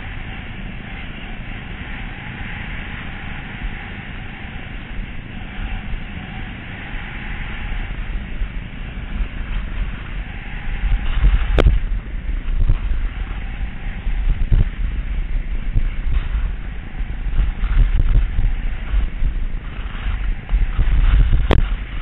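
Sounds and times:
wind buffeting microphone: 0:00.0 - 0:22.0
skis sliding over packed snow: 0:06.8 - 0:22.0.

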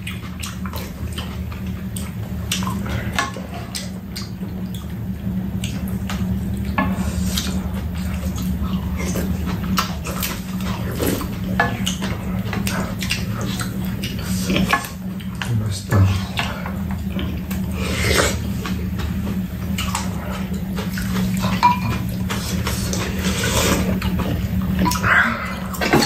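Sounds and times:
steady low hum: 0:00.0 - 0:26.0
utensils tapping ceramic bowls: 0:21.4 - 0:22.0.

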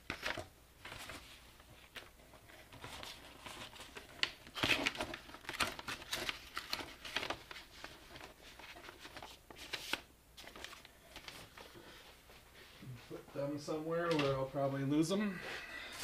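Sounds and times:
paper rustling and crinkling: 0:00.0 - 0:14.7.

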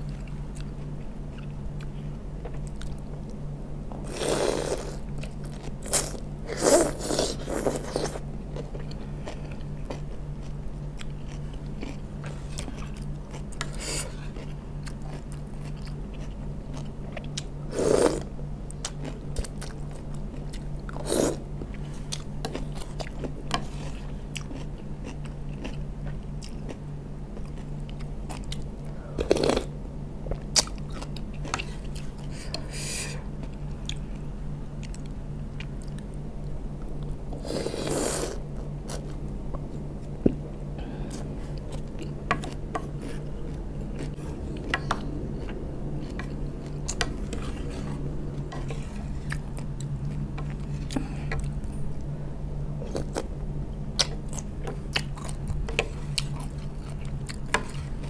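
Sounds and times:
steady low hum: 0:00.0 - 0:58.0
wet chewing and crunching: 0:06.9 - 0:17.5, 0:18.7 - 0:29.7, 0:41.1 - 0:52.1, 0:52.8 - 0:58.0.

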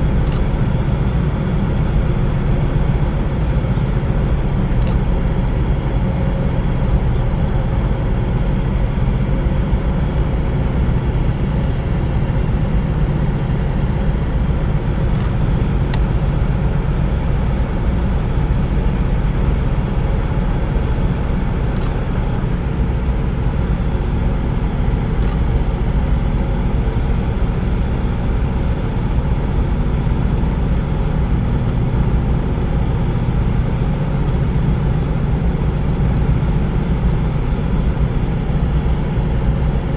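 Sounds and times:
faint machinery hum: 0:00.0 - 0:39.9
loud low engine rumble: 0:00.0 - 0:39.9
faint clicks: 0:00.2 - 0:00.5.

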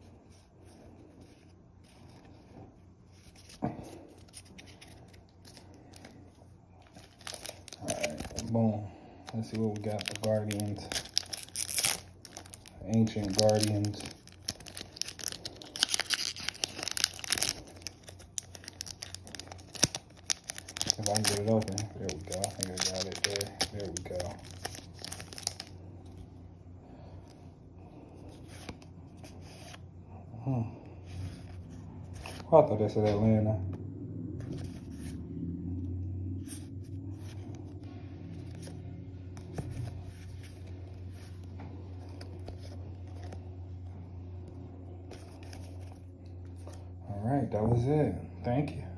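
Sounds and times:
low steady hum: 0:00.0 - 0:48.9
foil wrapper crinkling and tearing: 0:06.8 - 0:08.6, 0:09.3 - 0:25.8
trading cards flicking and rustling: 0:09.2 - 0:25.7.

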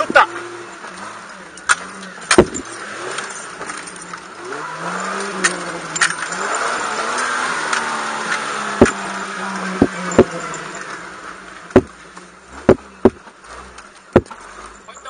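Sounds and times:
off-road vehicle engine: 0:00.0 - 0:15.0
knocks and clatters in cab: 0:02.3 - 0:02.7, 0:11.7 - 0:12.0, 0:12.6 - 0:13.4, 0:14.1 - 0:14.4.

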